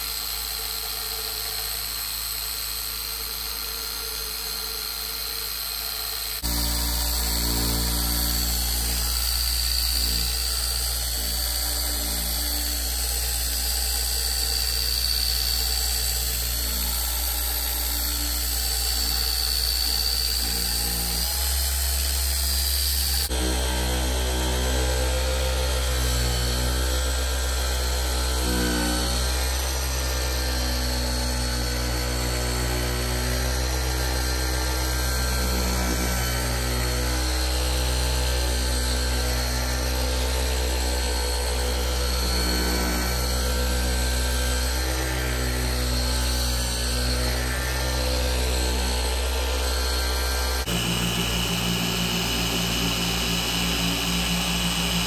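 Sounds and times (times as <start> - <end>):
machine polisher whining: 0.0 - 55.0.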